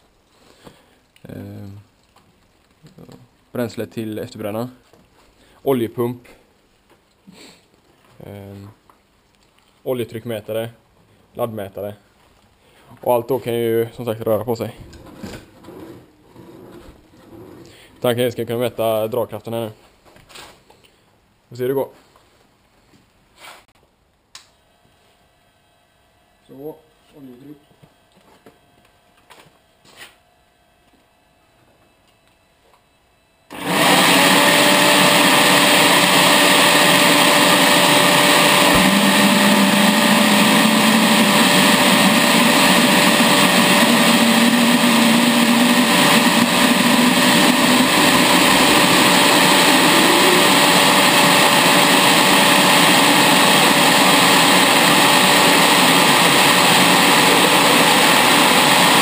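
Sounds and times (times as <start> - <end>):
electric blower rushing whine: 33.5 - 59.0.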